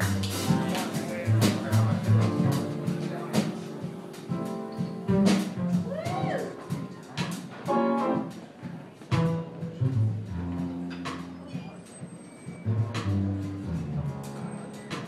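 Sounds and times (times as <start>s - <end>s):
low bass line: 0.0s - 3.4s, 12.7s - 14.3s
jazz guitar playing: 0.0s - 11.5s, 12.7s - 15.0s.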